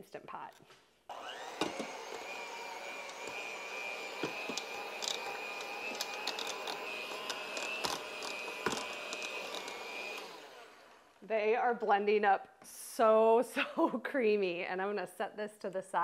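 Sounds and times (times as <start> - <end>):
electric hand mixer whine: 1.1 - 11.2.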